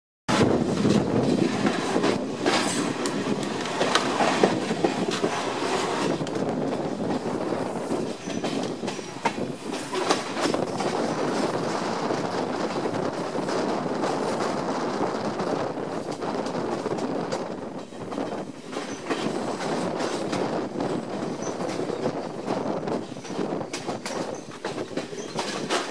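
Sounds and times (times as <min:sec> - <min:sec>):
train rolling rumble: 0:00.3 - 0:25.9
wheels clicking over rail joints: 0:16.0 - 0:25.9.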